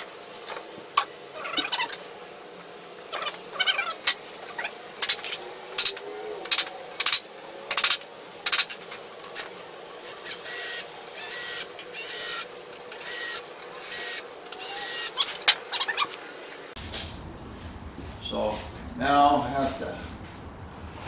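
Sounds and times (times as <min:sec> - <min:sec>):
cordless drill whining: 0:10.2 - 0:15.3.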